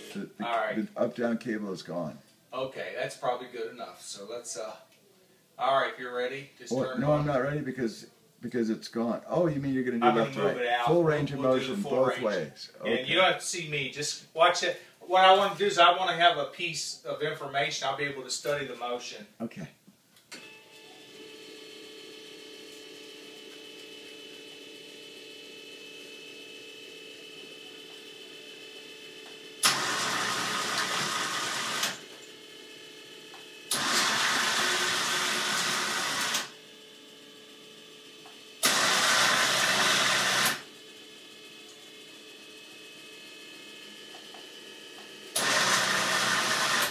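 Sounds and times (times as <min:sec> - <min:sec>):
electric actuator motor running: 0:21.2 - 0:46.9.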